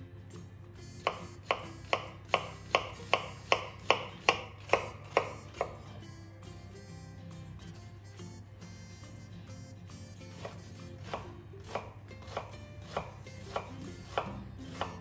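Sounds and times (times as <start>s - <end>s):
background music: 0.0s - 15.0s
knife slicing onion: 0.9s - 6.0s, 10.3s - 15.0s.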